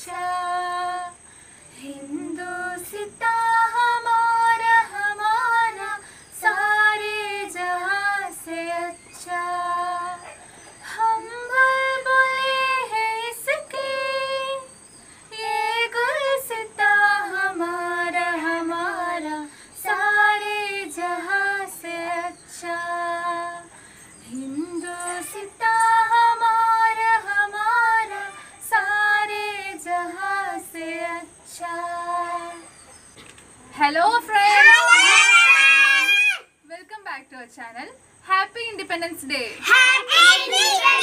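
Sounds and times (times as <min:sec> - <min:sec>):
children singing in unison: 0:24.9 - 0:32.8, 0:39.7 - 0:41.0.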